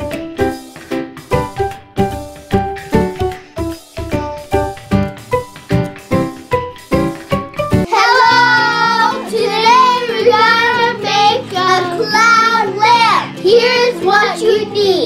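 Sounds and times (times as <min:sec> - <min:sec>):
instrumental backing: 0:00.0 - 0:15.0
children singing: 0:07.9 - 0:15.0.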